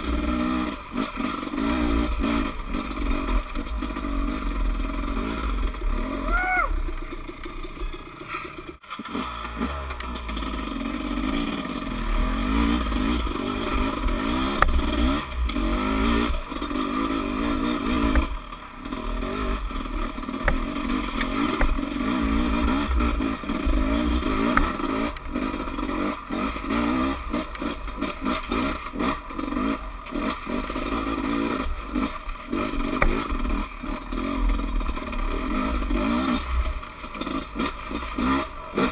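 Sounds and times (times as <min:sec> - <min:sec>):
dirt bike engine revving: 0:00.0 - 0:38.9
bike knocking over bumps: 0:20.4 - 0:21.8.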